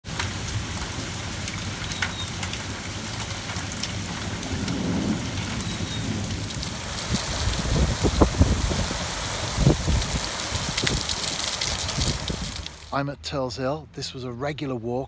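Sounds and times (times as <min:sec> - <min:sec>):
heavy rain pouring: 0:00.0 - 0:13.0
strong wind: 0:02.6 - 0:12.8.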